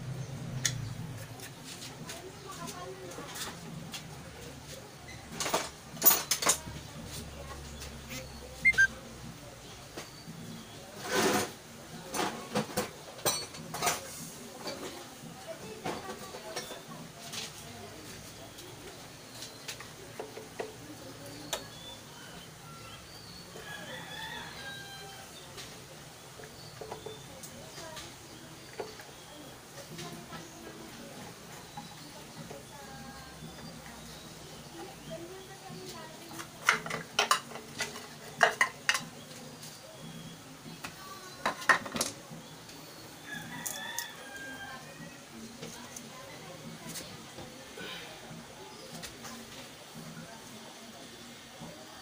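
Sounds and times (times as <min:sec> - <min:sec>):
short high calls: 0:08.6 - 0:09.0
rooster crowing faintly: 0:22.1 - 0:25.5, 0:43.2 - 0:45.3.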